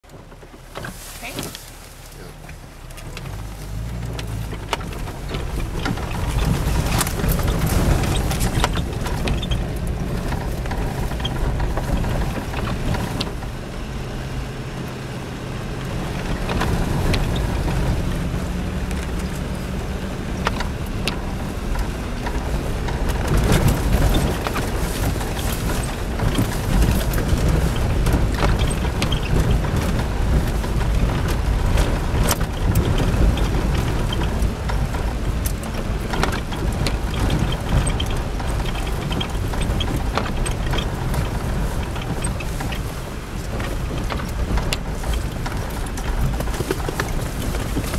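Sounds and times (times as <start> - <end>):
car knocks and rattles: 0.0 - 47.9
engine hum inside car: 0.0 - 47.9.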